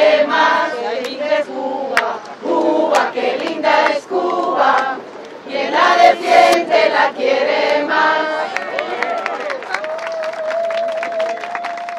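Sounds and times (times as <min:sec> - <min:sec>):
crowd singing in unison: 0:00.0 - 0:08.7.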